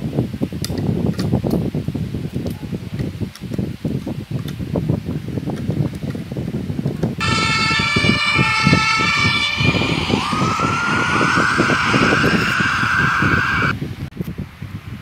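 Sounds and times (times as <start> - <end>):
toy siren: 7.2 - 13.8.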